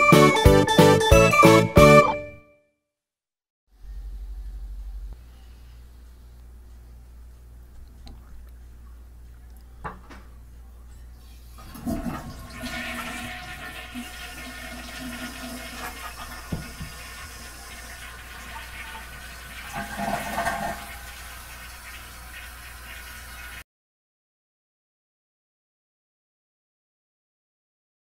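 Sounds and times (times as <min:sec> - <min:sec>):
toilet flushing: 0:11.6 - 0:23.6.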